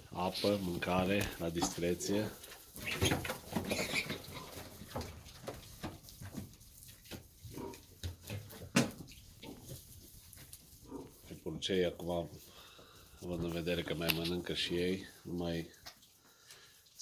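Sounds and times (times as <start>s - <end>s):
pigs grunting: 7.5s - 8.5s, 10.8s - 11.5s.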